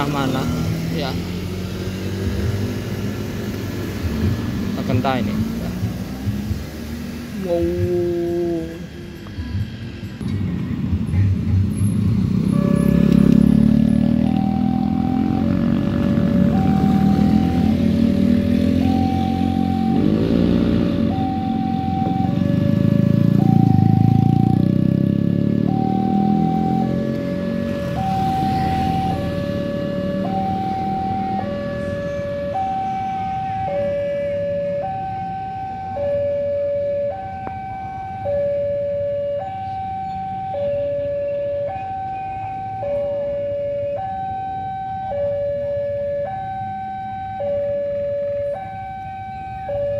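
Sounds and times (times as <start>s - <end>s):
motorcycles and cars passing: 0.0s - 49.9s
level crossing alarm: 14.0s - 15.7s, 16.3s - 49.9s.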